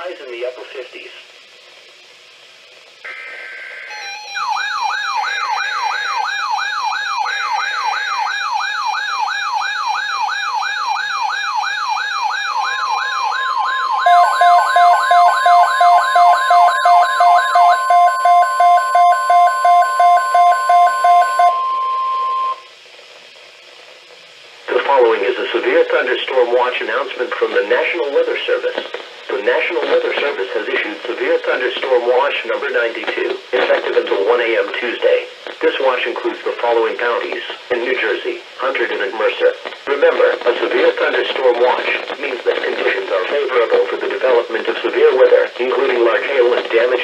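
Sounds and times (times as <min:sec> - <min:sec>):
fast warbling siren: 0:03.9 - 0:22.7
steady warning tone: 0:11.5 - 0:22.7
screechy data bursts: 0:12.4 - 0:21.6
rapid beeps: 0:12.6 - 0:22.7.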